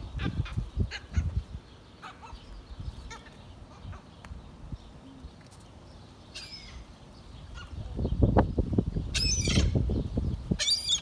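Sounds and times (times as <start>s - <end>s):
gulls calling: 0.0s - 5.3s, 9.1s - 11.0s.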